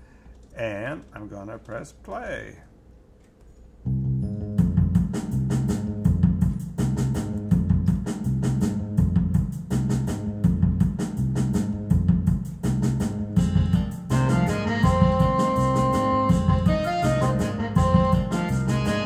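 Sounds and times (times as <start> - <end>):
bass line: 3.9 - 19.0
drum kit kick and snare: 4.6 - 19.0.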